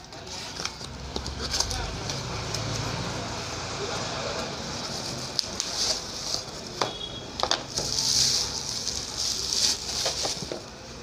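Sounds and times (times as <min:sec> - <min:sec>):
plastic wrapping crinkling: 0:04.7 - 0:11.0.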